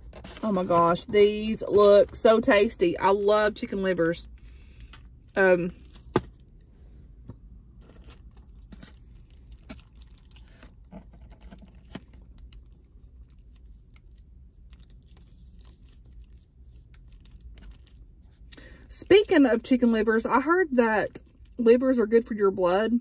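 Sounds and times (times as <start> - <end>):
plastic packet crinkling: 7.8 - 18.3.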